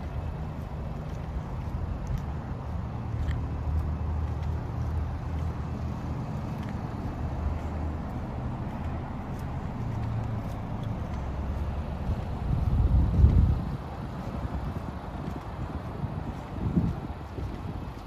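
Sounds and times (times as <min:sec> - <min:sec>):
vehicle engine low rumble: 0:00.0 - 0:18.0
wind buffeting microphone: 0:00.0 - 0:18.0.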